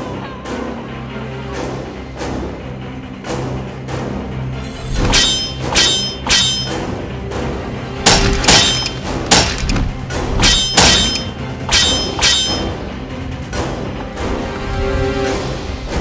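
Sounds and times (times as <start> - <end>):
background music score: 0.0 - 16.0
metallic sword clangs: 5.0 - 7.0, 8.1 - 12.8.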